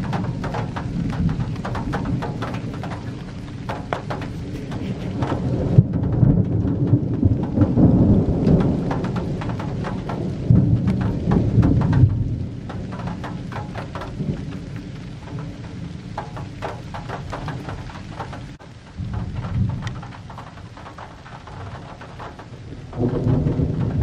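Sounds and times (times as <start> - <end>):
rolling thunder: 0.0 - 24.0
light ticks: 19.4 - 23.5.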